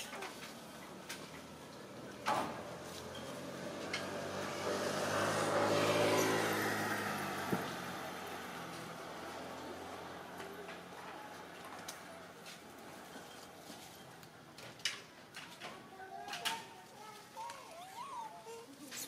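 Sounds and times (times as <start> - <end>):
vehicle driving past: 2.5 - 10.9.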